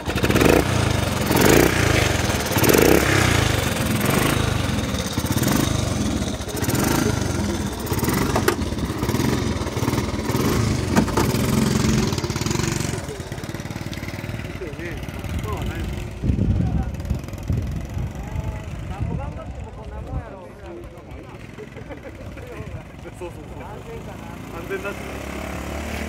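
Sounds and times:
motorcycle engine revving: 0.0 - 19.7, 21.0 - 26.0.

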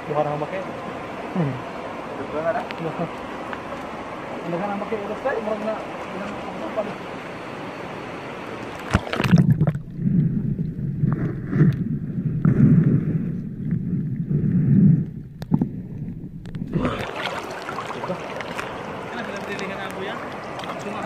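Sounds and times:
muffled underwater water noise: 0.0 - 21.0
river water sloshing: 0.6 - 14.4, 15.1 - 21.0
sharp knocks underwater: 8.8 - 17.8.

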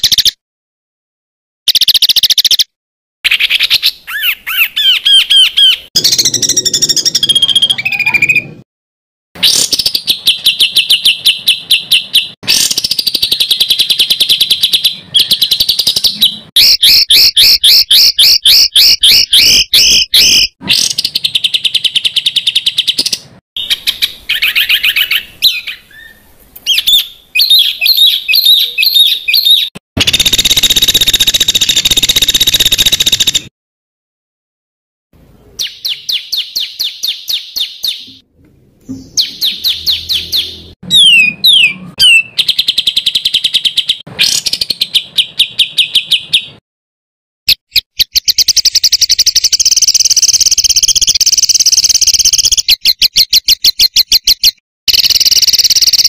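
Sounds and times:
songbirds singing rapid phrases: 1.7 - 2.7, 3.3 - 8.6, 9.4 - 33.5, 35.3 - 38.2, 38.8 - 46.6, 47.7 - 56.0.

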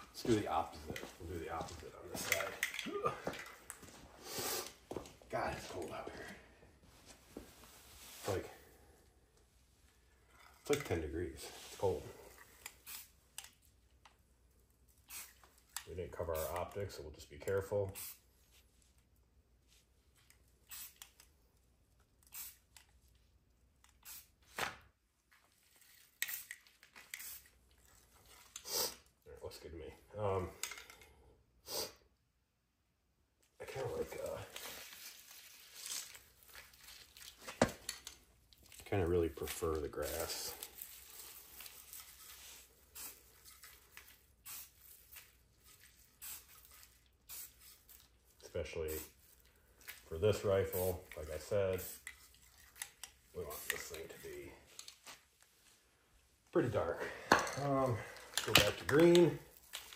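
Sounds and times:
aerosol spray can hissing: 12.8 - 13.1, 15.1 - 15.4, 20.7 - 21.1, 22.3 - 22.7, 24.0 - 24.4, 27.1 - 27.5, 44.4 - 44.8, 47.3 - 47.7
spray paint can hissing: 12.8 - 13.2, 15.1 - 15.4, 18.0 - 18.3, 20.6 - 21.2, 22.3 - 22.7, 24.0 - 24.4, 26.2 - 26.5, 27.1 - 27.5, 42.9 - 43.2, 44.4 - 45.1, 46.0 - 47.9.

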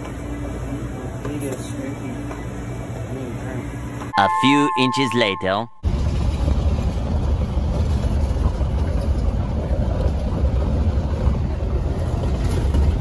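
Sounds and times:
truck driving on gravel: 5.8 - 13.0.

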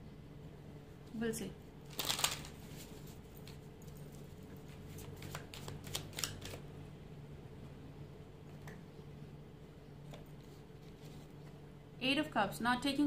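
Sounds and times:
faint steady hum: 0.0 - 13.0
cards being shuffled: 1.9 - 6.6.

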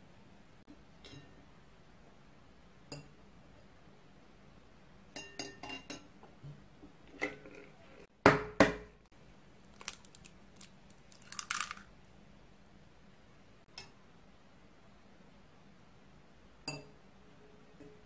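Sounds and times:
eggshell crackling: 9.6 - 12.1.

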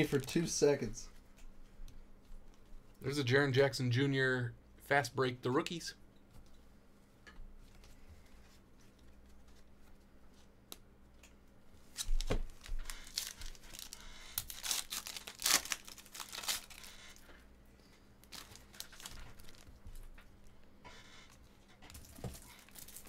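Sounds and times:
wrappers tearing and crinkling: 12.0 - 17.3, 18.2 - 20.1, 22.0 - 23.0.

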